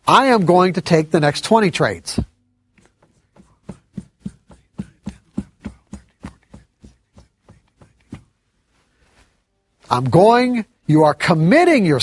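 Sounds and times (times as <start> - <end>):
marker writing on whiteboard: 2.7 - 8.4.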